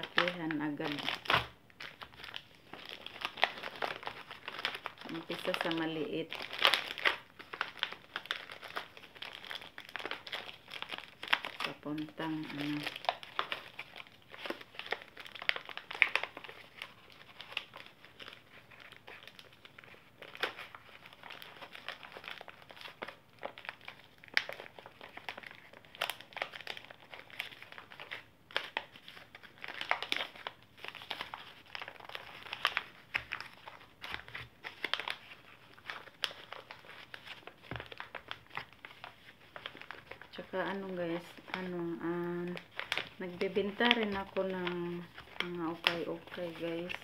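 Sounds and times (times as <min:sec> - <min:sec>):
packaging pouches crinkling: 0:00.0 - 0:47.0.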